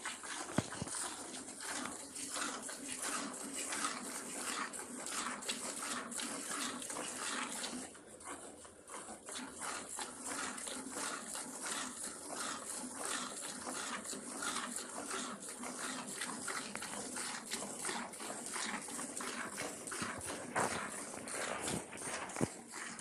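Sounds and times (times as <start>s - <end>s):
milk squirting into metal pot: 0.0s - 23.0s.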